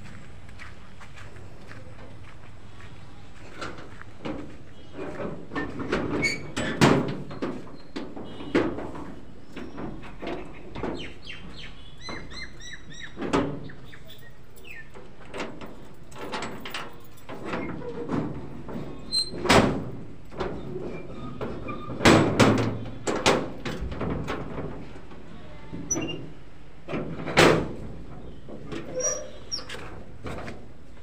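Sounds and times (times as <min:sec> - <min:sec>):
metal door bolt clanking: 0:05.6 - 0:11.0, 0:13.2 - 0:24.8, 0:26.9 - 0:30.5.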